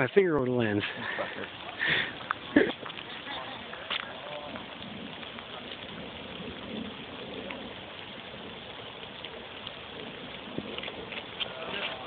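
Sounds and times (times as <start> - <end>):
faint ticks of drops: 0.0 - 5.9
light rain hissing: 0.0 - 12.0.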